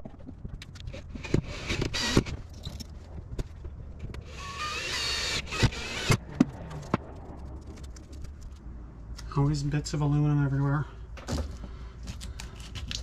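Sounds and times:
tool and screws clicking: 0:00.6 - 0:02.9
cordless drill whirring: 0:01.2 - 0:02.3, 0:04.2 - 0:06.2.

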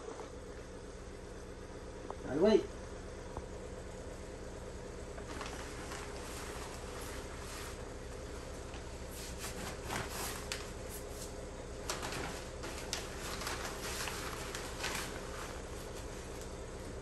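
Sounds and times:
steady low hum: 0:00.0 - 0:17.0
roofing felt rustling and crinkling: 0:05.2 - 0:17.0.

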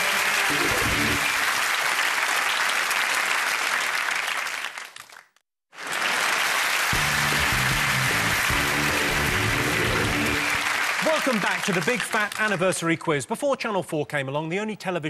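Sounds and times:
music: 0:00.0 - 0:01.4, 0:07.0 - 0:10.8
audience applauding: 0:00.0 - 0:12.9.

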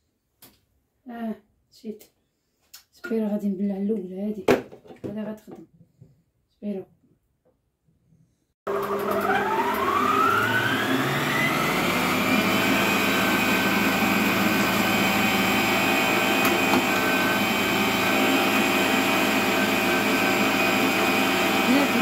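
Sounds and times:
meat grinder motor whine: 0:08.7 - 0:22.0.

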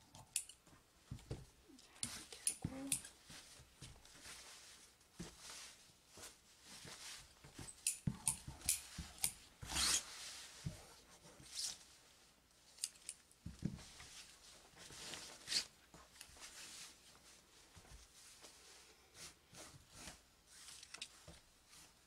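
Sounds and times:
fabric rustling: 0:03.1 - 0:07.8, 0:13.6 - 0:22.0.

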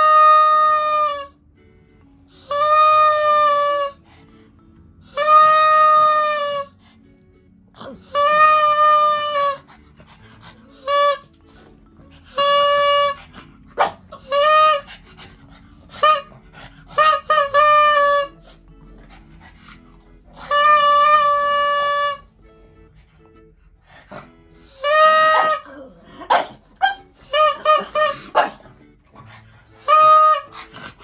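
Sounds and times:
plastic toy horn tooting: 0:00.0 - 0:01.3, 0:02.4 - 0:04.0, 0:05.1 - 0:06.7, 0:08.1 - 0:09.7, 0:10.8 - 0:11.5, 0:12.2 - 0:13.3, 0:17.0 - 0:18.5, 0:20.4 - 0:22.3, 0:24.7 - 0:25.8, 0:26.8 - 0:28.5, 0:29.8 - 0:30.6.

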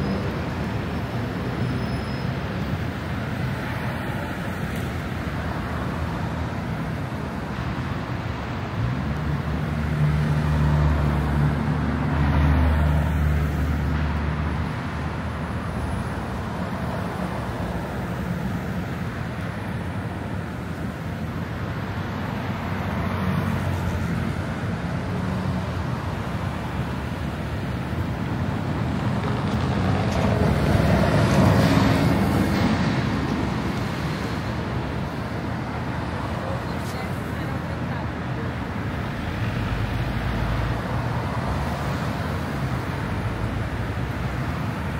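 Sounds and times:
city street traffic: 0:00.0 - 0:44.9
vehicles passing: 0:00.0 - 0:44.9.

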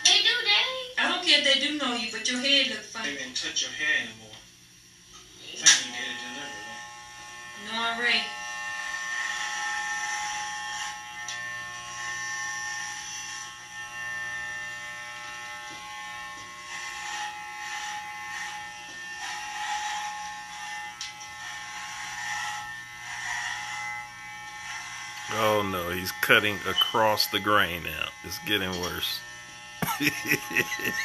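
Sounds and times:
electric hair clippers buzzing: 0:05.1 - 0:31.0.

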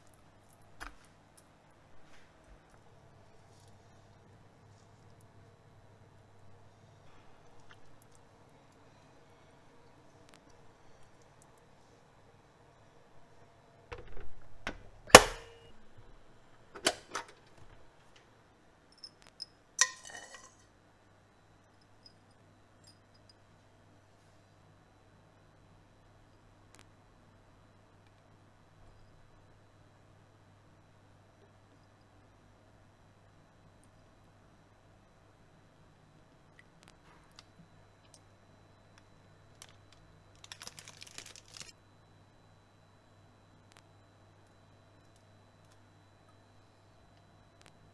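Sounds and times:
metal spoon clinking on glass bowl: 0:19.4 - 0:20.6.

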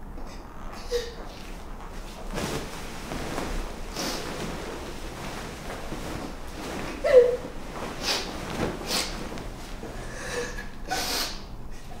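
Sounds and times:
blanket rustling: 0:01.4 - 0:10.1
woman breathing sharply and snorting: 0:10.0 - 0:12.0.

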